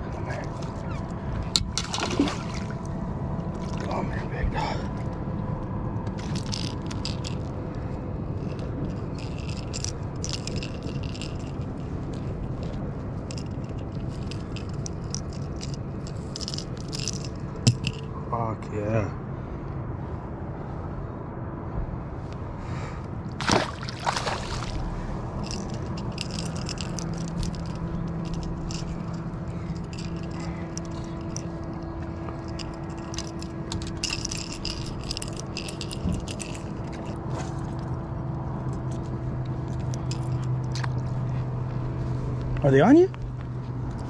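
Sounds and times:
boat motor humming: 0.0 - 18.2, 23.4 - 44.0
fishing lure hooks rattling: 6.2 - 7.6, 8.4 - 18.1, 24.5 - 37.3, 39.7 - 41.1.

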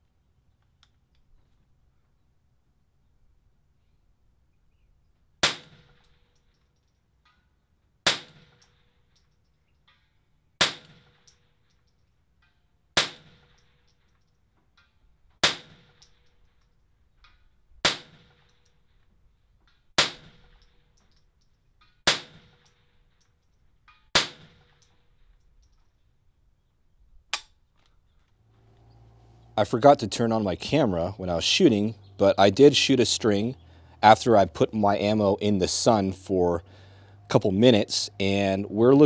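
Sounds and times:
rifle shots with faint ring: 5.4 - 6.6, 8.0 - 9.1, 10.6 - 11.6, 13.0 - 14.1, 15.4 - 16.6, 20.0 - 21.0, 22.0 - 23.2, 24.0 - 25.2.

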